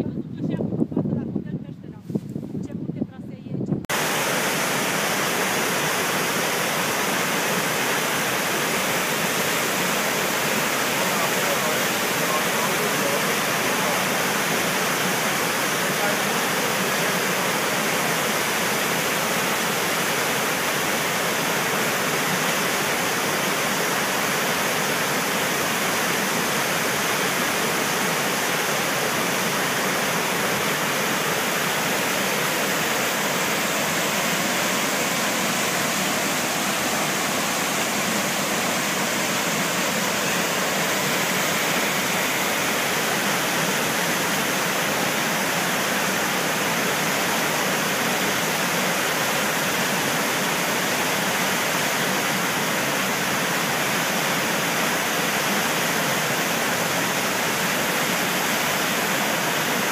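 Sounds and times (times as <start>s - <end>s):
waterfall rushing onto rocks: 3.9s - 59.9s.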